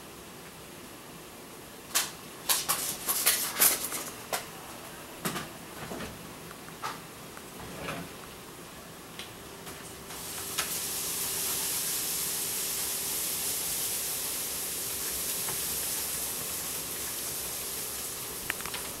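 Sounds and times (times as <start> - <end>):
steady high hiss: 8.2 - 19.0.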